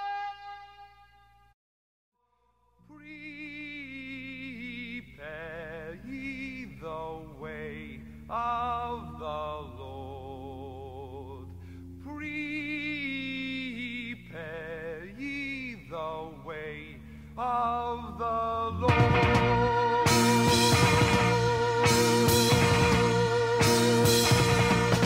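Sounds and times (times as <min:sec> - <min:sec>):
person singing with vibrato: 0:02.3 - 0:25.0
sustained low accompaniment: 0:19.0 - 0:25.0.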